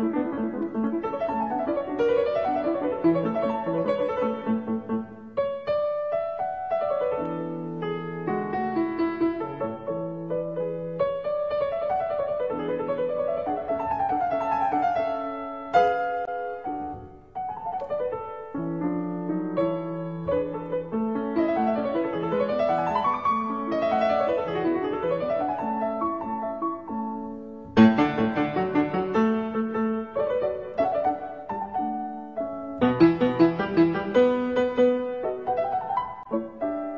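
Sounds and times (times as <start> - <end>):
solo piano music: 0.0 - 36.9.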